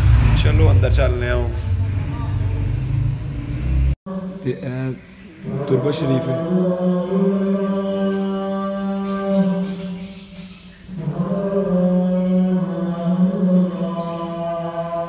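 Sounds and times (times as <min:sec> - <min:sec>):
person chanting long notes: 0:04.1 - 0:10.3, 0:10.9 - 0:15.0.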